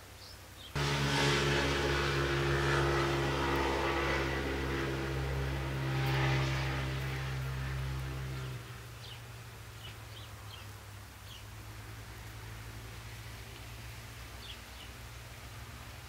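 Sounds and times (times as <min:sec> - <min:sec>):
engine hum: 0:00.6 - 0:16.0
rushing noise: 0:00.8 - 0:08.8.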